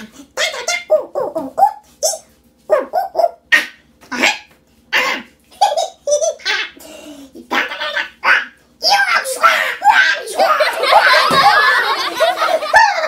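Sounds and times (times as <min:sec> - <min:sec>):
man yelping and laughing: 0:09.5 - 0:13.0.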